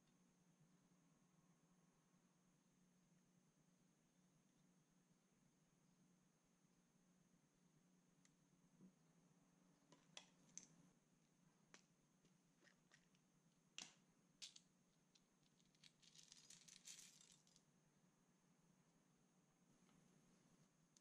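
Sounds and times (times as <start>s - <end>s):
plastic beads pattering onto glass: 15.4s - 17.6s.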